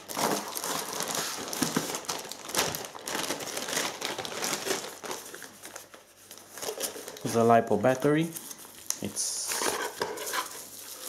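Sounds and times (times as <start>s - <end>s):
plastic bags crinkling: 0.0s - 7.8s, 8.5s - 11.0s.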